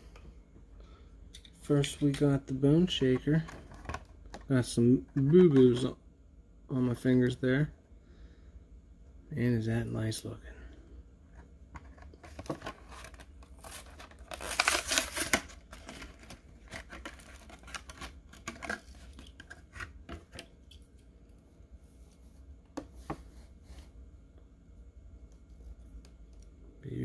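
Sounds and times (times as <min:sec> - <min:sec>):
plastic blister crinkling: 0:12.0 - 0:19.8
cardboard tearing: 0:12.4 - 0:19.0.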